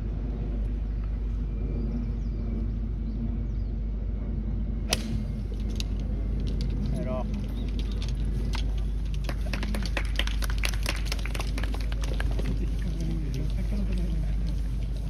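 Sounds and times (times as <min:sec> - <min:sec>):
low background rumble: 0:00.0 - 0:15.0
golf club striking ball: 0:04.9 - 0:06.0.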